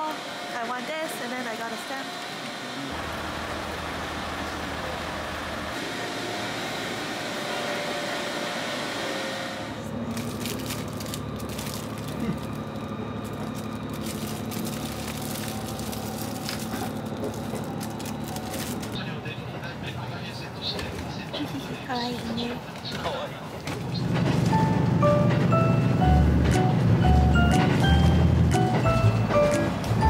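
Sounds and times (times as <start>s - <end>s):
voices on a station platform: 0.0s - 10.4s, 15.5s - 26.2s
train low hum: 0.0s - 30.0s
plastic wrapping crinkling: 10.1s - 19.0s.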